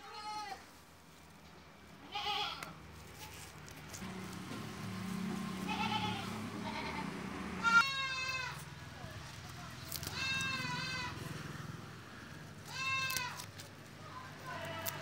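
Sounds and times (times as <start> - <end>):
goats bleating: 2.0 - 2.7, 5.6 - 8.7, 10.0 - 11.2, 12.6 - 13.5, 14.2 - 15.0.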